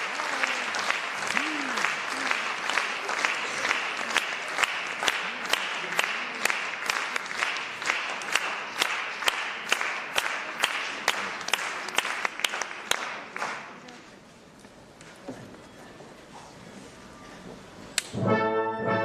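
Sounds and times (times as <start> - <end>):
audience applauding: 0.0 - 13.9
sharp rhythmic claps: 0.0 - 14.0.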